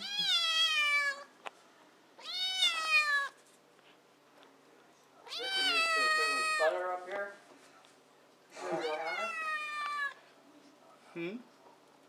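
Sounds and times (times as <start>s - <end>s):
kitten meowing: 5.3s - 6.6s.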